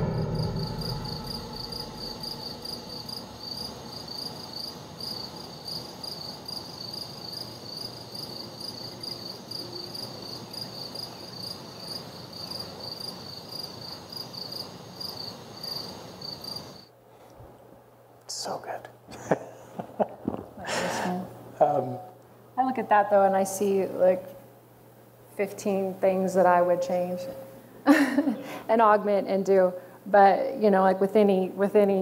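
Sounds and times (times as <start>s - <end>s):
film score music: 0.0s - 3.7s
faint low hum: 0.0s - 5.9s
crickets chirping: 0.0s - 17.0s.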